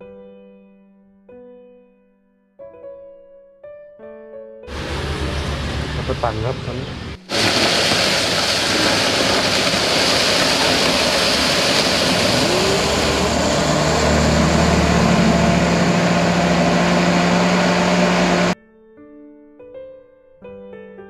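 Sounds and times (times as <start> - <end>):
blender running: 7.3 - 18.6.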